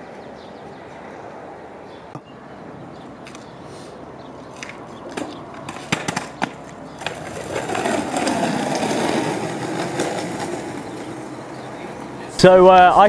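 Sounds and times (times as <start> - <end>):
skateboard wheels rolling on tarmac: 0.0 - 13.0
skateboard clacks: 4.5 - 12.5.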